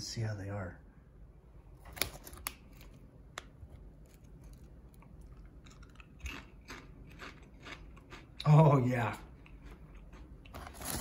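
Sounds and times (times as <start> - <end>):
potato chips crunching: 4.0 - 11.0.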